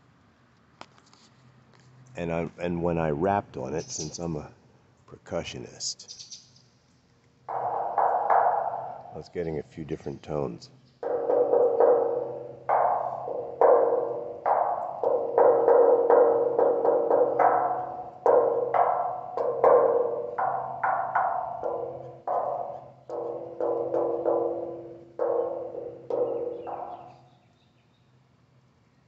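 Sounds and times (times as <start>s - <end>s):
knuckles knocking on metal sculpture: 7.5s - 9.2s, 11.0s - 27.2s
low metallic vibration: 7.5s - 9.2s, 11.0s - 27.2s.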